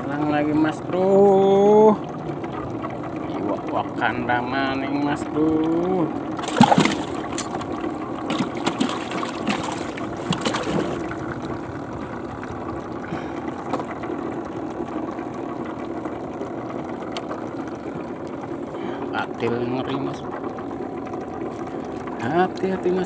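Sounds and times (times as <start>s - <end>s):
steady motor hum: 0.0s - 23.0s
fish splashing in water: 6.3s - 11.9s.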